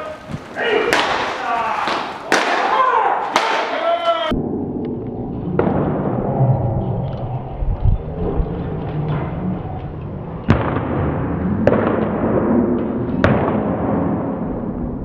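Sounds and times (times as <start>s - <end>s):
baseballs smacking into mitts: 0.2s - 3.8s.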